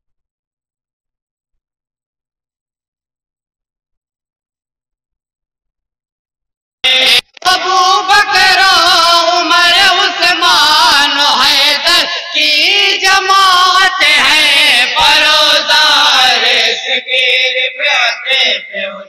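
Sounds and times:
group holding sung note: 6.8s - 19.0s
man singing devotional song: 6.9s - 19.0s.

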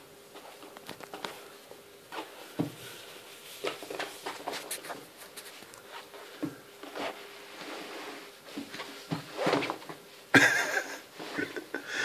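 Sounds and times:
soft thumps on padded mat: 2.2s - 2.8s, 8.5s - 10.0s.

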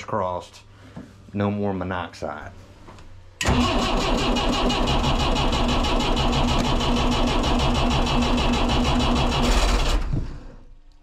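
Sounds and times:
starter cranking engine: 3.4s - 10.1s.

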